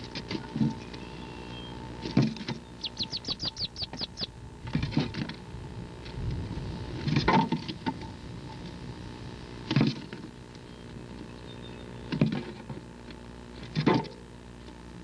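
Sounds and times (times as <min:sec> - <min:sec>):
high duckling peeps: 0:02.4 - 0:04.4.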